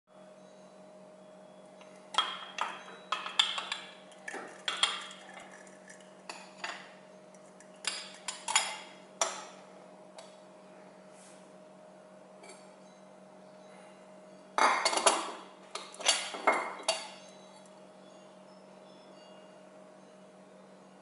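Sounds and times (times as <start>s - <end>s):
glass clinking against metal rods: 1.8s - 9.6s, 14.5s - 20.2s.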